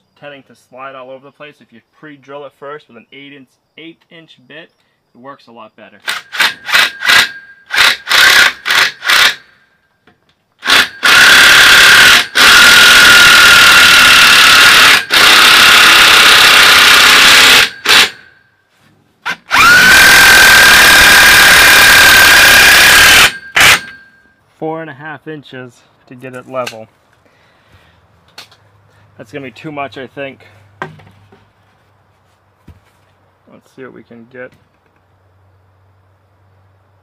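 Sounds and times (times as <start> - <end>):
cordless drill motor whine: 6.3 - 9.5, 10.6 - 18.3, 19.5 - 24.1.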